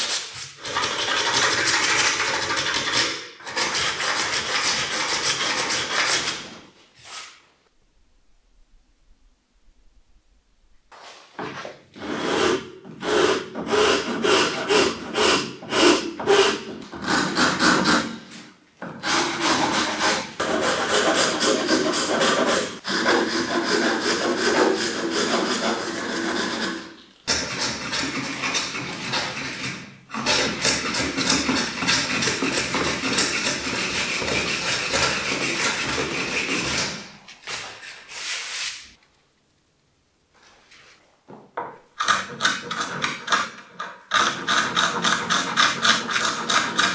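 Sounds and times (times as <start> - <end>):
hand rasp scraping wood: 0.0 - 7.4, 12.0 - 38.8, 44.1 - 46.9.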